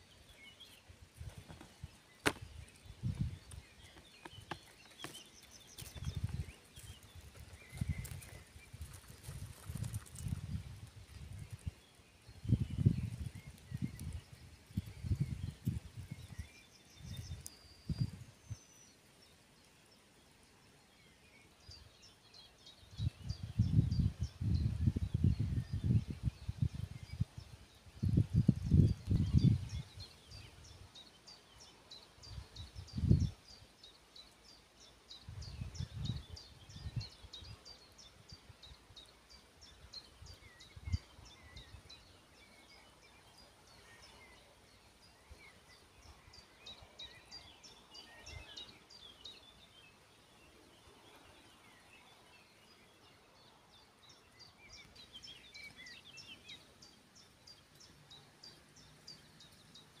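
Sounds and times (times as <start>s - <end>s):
birds singing: 0.0s - 60.0s
wind gusts on microphone: 0.9s - 4.6s, 5.6s - 18.6s, 22.8s - 31.0s, 31.6s - 33.6s, 35.1s - 44.0s.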